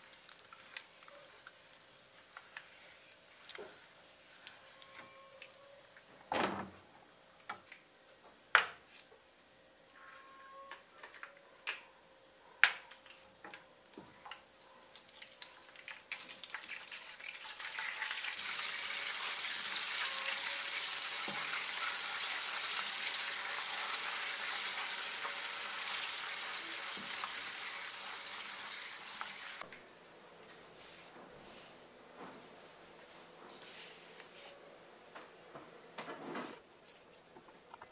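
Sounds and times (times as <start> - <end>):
loud sizzle: 0.0 - 4.5, 16.1 - 29.6.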